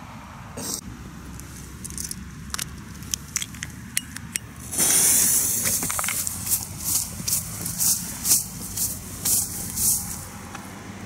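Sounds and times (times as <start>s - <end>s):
fuse hissing loudly: 4.7s - 6.9s.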